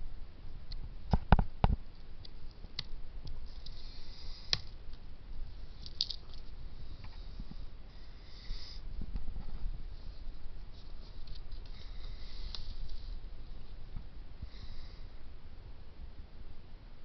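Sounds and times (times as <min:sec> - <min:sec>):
leaves rustling: 0:09.4 - 0:15.0.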